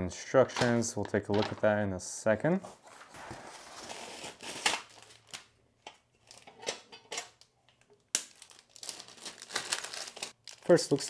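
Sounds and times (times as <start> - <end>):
packaging rustling: 8.1 - 11.0.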